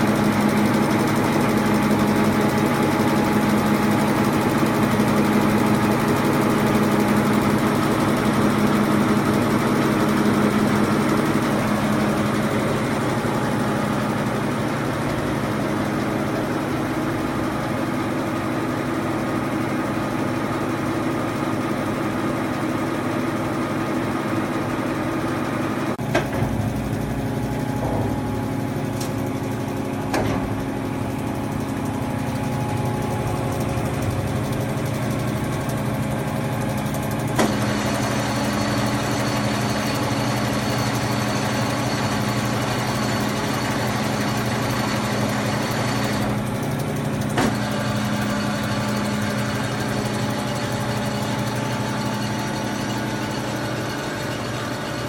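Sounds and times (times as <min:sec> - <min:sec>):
grinder machine humming: 0:00.0 - 0:55.0.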